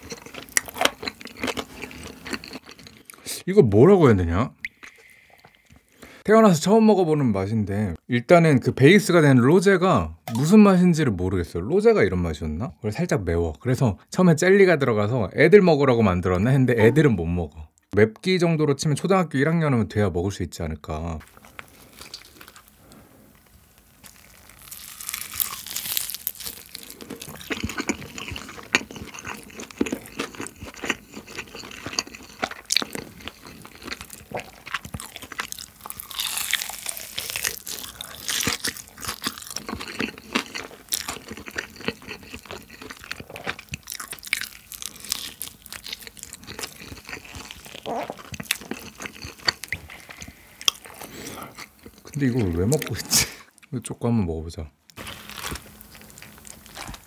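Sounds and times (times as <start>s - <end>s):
crunchy bites and chewing: 0.0s - 3.3s, 24.0s - 53.2s, 54.9s - 57.0s.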